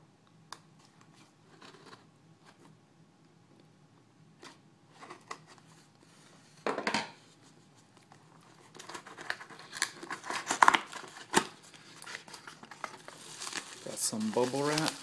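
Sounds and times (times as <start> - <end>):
cardboard and packing rustling: 8.2 - 15.0
cardboard tearing: 12.1 - 15.0.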